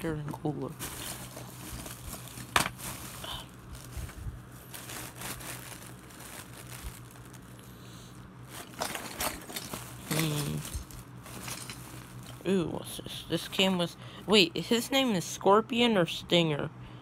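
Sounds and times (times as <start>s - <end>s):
hand rummaging through lego pieces: 0.0s - 7.8s, 8.4s - 12.6s
plastic bag crinkling: 0.0s - 14.4s.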